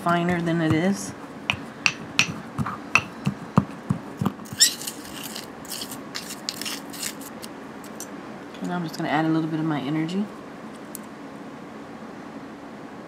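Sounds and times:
spoon scraping gritty dirt: 0.0s - 3.1s, 4.2s - 8.0s
metal spoon knocking in bowl: 1.5s - 2.4s, 3.0s - 3.4s.

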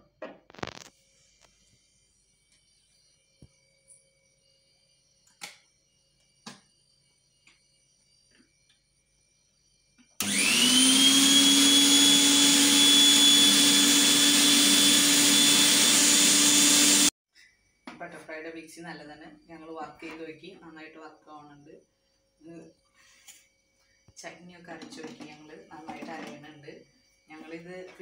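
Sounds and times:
mixer grinder motor whine: 10.0s - 17.1s.

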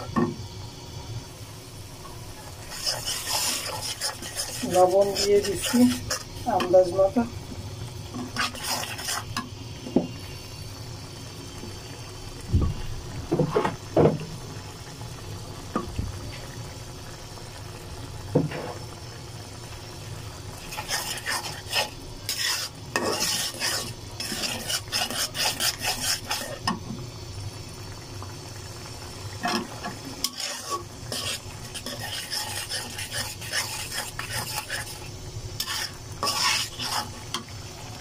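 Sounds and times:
onion masala frying: 0.0s - 38.0s
spatula scraping a pan: 2.4s - 6.8s, 8.1s - 9.4s, 20.6s - 26.8s, 29.4s - 37.5s.

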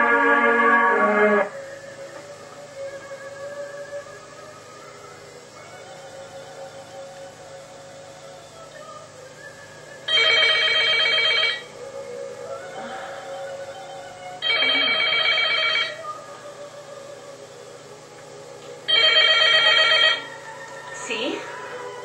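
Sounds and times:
telephone ringing: 10.1s - 11.7s, 14.4s - 16.0s, 18.9s - 20.3s.

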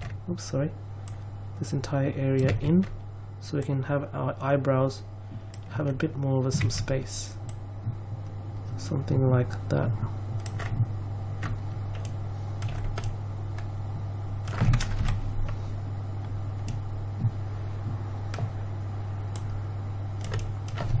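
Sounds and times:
low electrical hum: 0.0s - 21.0s
keyboard and mouse clicks: 11.4s - 13.7s, 16.6s - 16.8s, 20.2s - 21.0s.

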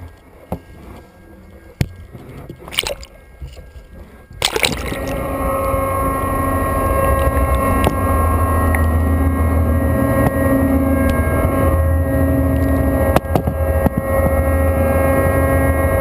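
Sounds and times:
underwater ship machinery hum: 0.0s - 16.0s
water splashing against ship hull: 1.7s - 5.5s.

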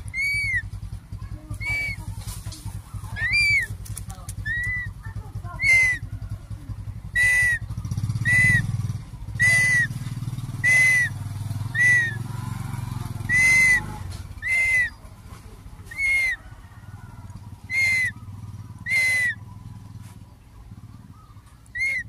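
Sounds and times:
hawk whistled calls: 0.0s - 0.7s, 1.6s - 2.0s, 2.9s - 3.8s, 4.4s - 5.0s, 5.6s - 6.1s, 7.0s - 12.3s, 13.2s - 15.0s, 15.9s - 16.5s, 17.6s - 19.5s, 21.1s - 22.0s
low steady rumble: 0.0s - 22.0s.

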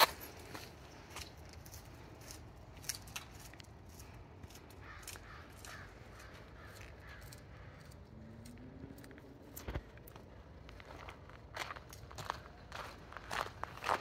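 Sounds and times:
faint footsteps: 0.0s - 14.0s
bird harsh calls: 4.7s - 8.0s.

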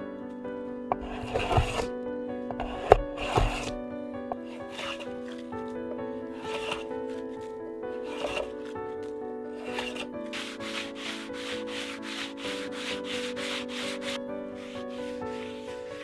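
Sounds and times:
background music with sustained notes: 0.0s - 16.0s
sandpaper rubbing on wood: 1.0s - 1.9s, 2.6s - 3.8s, 4.4s - 5.2s, 6.4s - 6.9s, 8.0s - 8.5s, 9.6s - 16.0s.

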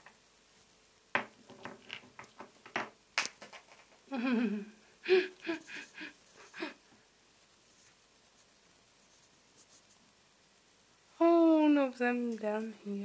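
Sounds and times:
bird knocking rocks on tabletop: 1.1s - 4.0s.

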